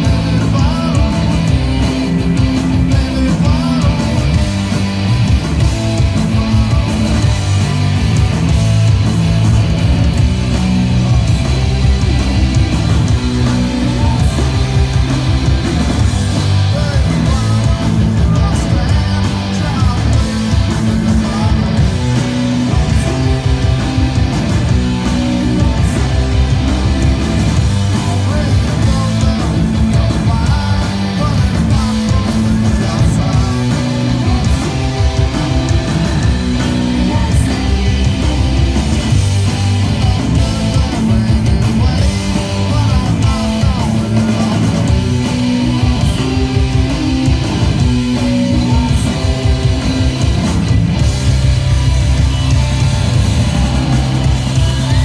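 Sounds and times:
person singing: 0.0 - 4.7, 16.4 - 24.2, 27.9 - 39.0
bass guitar: 0.0 - 55.0
drums: 0.0 - 55.0
electric guitars: 0.0 - 55.0.

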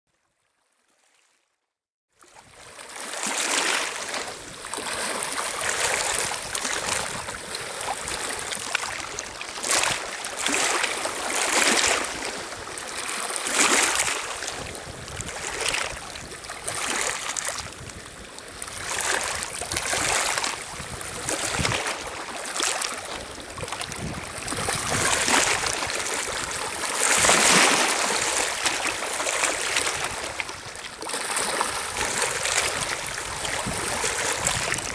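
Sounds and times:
lake waves lapping on pebbles: 2.1 - 34.9.

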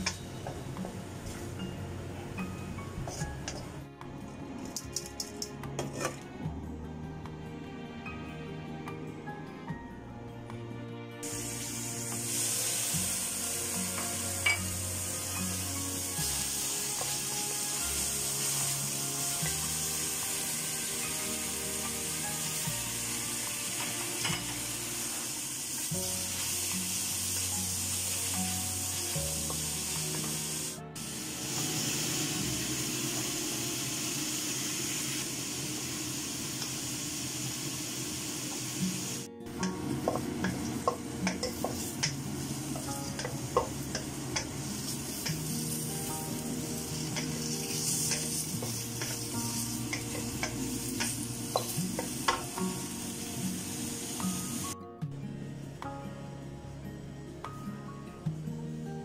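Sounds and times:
background music: 0.0 - 59.0
vegetables sizzling in a wok: 11.2 - 54.8.

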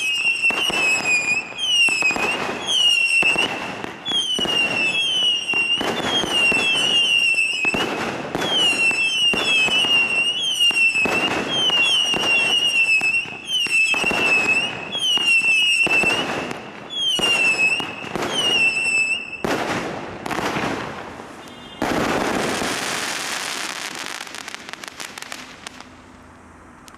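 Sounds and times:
firework whistles dipping in pitch: 0.0 - 7.8, 8.4 - 19.5
fireworks crackling: 0.0 - 26.9.

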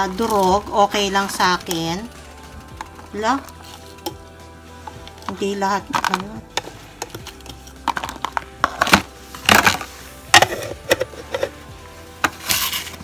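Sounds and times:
background music: 0.0 - 13.0
dried chilies clattering into bowl: 4.9 - 11.6.

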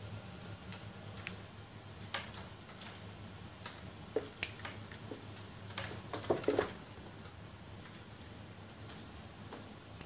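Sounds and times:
steady low hum: 0.0 - 10.0
small clicks and taps: 0.7 - 8.1.

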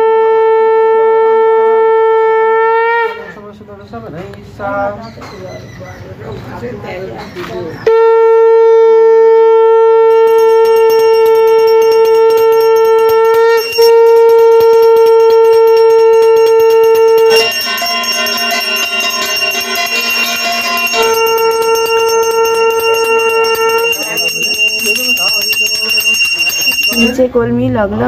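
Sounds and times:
conch shell blown: 0.0 - 3.5, 7.9 - 27.2
hand bell ringing: 10.1 - 27.3.

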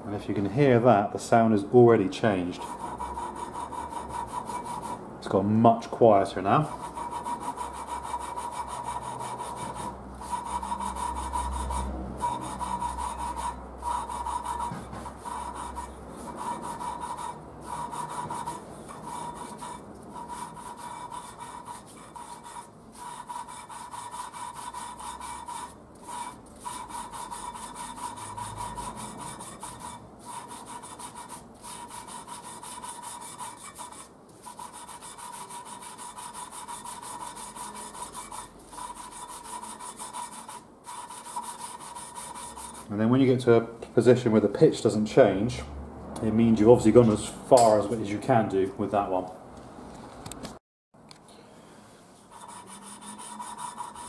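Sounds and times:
valve grinding rasp: 2.5 - 5.1, 6.6 - 42.9, 52.3 - 54.0.

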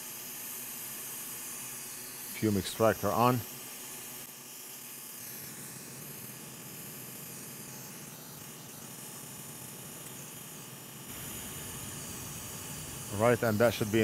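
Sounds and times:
extractor fan hissing: 1.3 - 14.0
low hum: 11.1 - 14.0.

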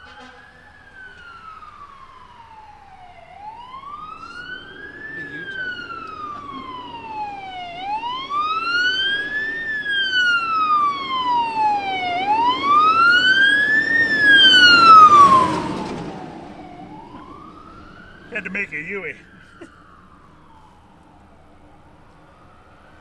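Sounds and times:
siren wailing: 0.0 - 23.0.

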